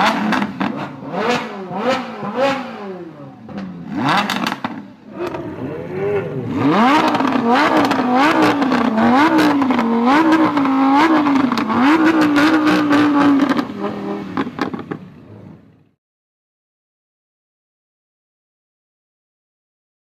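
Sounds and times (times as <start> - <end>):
car engine revving: 0.0 - 15.7
exhaust crackles and pops: 3.5 - 5.4, 6.9 - 15.2.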